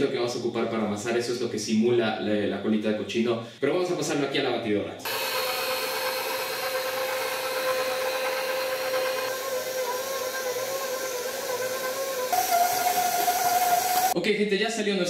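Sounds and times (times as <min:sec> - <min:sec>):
stand mixer motor whine: 0:05.1 - 0:14.2.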